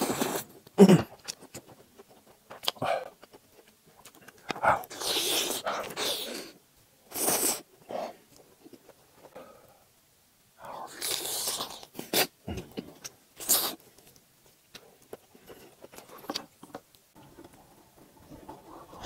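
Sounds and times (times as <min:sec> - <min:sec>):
chewing: 0:00.1 - 0:06.4, 0:10.8 - 0:17.6
mouth clicks and smacks: 0:00.6 - 0:06.2.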